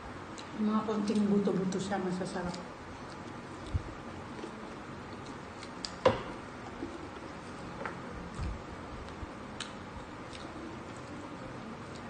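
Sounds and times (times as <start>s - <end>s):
chewing and mouth noises: 8.3s - 12.0s.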